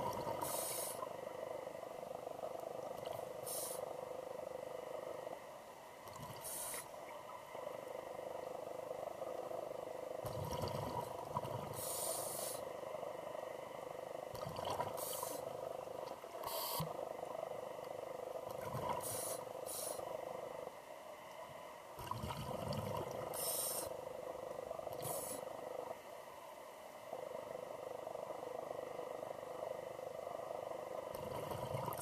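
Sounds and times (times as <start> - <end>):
steady hum: 0.0 - 32.0
diver inhaling through regulator: 0.4 - 1.1, 3.4 - 3.9, 6.3 - 6.9, 11.7 - 12.7, 19.0 - 20.1, 23.3 - 24.0, 24.9 - 25.5
rumbling exhaled bubbles: 22.0 - 23.4, 31.1 - 32.0.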